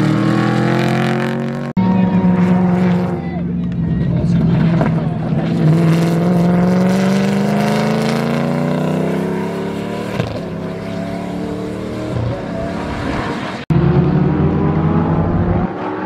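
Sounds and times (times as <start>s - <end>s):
race car engine accelerating: 0.0s - 16.0s.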